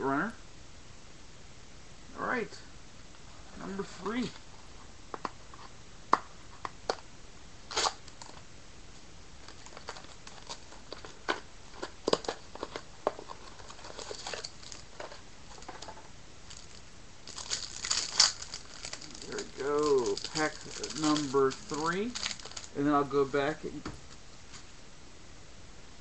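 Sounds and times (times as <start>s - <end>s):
card wrapper crinkling: 7.7s - 8.4s, 9.4s - 23.5s.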